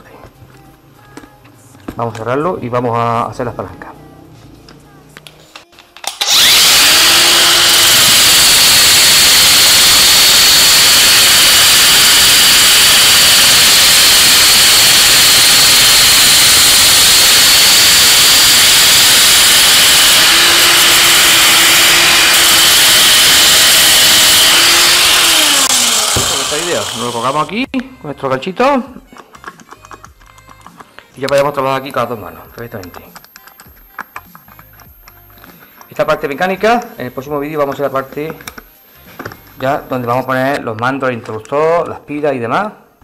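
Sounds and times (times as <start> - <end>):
angle grinder and drill whining: 6.0 - 27.7, 31.3 - 40.6.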